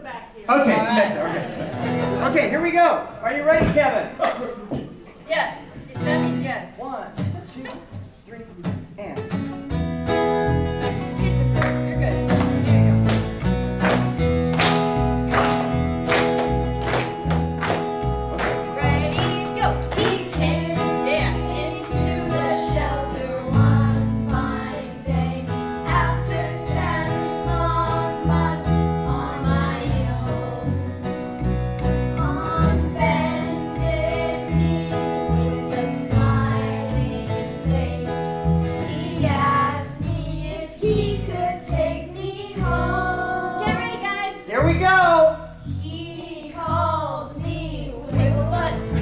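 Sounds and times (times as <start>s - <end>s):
acoustic guitar: 0.0s - 4.0s, 4.8s - 49.0s
plucked double bass: 9.7s - 44.0s, 44.6s - 49.0s
group of voices singing: 18.4s - 31.0s, 32.2s - 44.8s, 45.7s - 49.0s.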